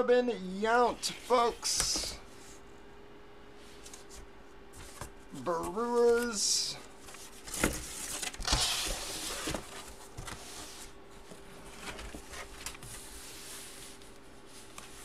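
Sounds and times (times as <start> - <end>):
plastic sleeves and paper rustling: 3.6 - 15.0.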